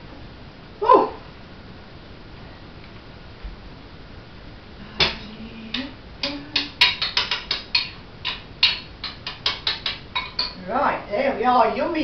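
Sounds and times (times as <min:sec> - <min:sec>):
spoon clinking against pan and bowl: 0:05.8 - 0:10.6.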